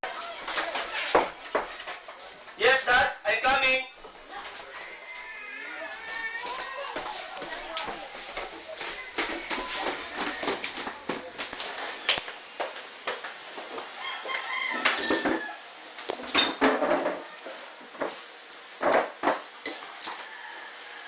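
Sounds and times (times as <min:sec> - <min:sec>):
dishes clattering: 0:14.9 - 0:15.4, 0:16.3 - 0:17.2.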